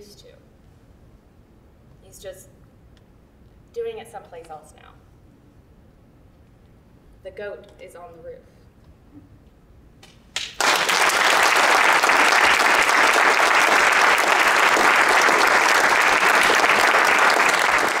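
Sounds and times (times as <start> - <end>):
audience clapping: 10.0 - 18.0.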